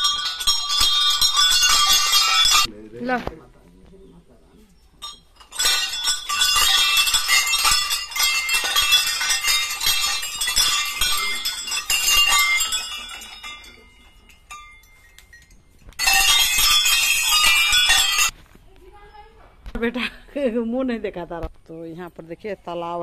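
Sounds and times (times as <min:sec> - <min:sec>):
brass bells clanging: 0:00.0 - 0:02.7, 0:05.0 - 0:18.3.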